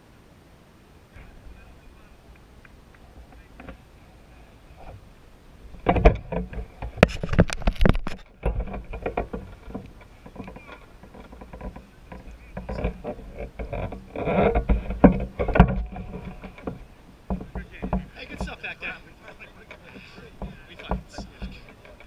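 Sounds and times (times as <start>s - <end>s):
microphone rubbing and rustling: 1.2s - 22.0s
camera handling knocks and clicks: 5.8s - 10.6s.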